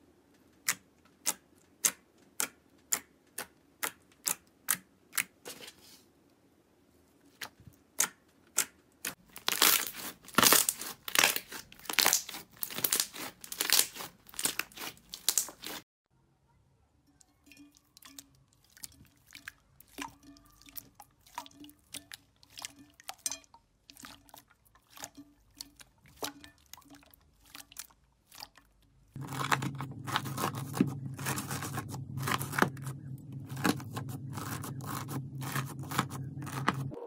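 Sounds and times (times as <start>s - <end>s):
slime squelching: 7.3s - 15.8s, 17.9s - 37.0s
slime crackling: 8.6s - 15.8s, 24.0s - 37.0s
steady low hum: 29.2s - 37.0s.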